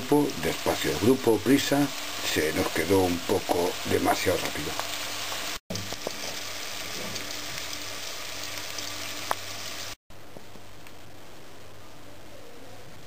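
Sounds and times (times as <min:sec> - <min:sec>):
garlic sizzling in oil: 0:00.0 - 0:12.0.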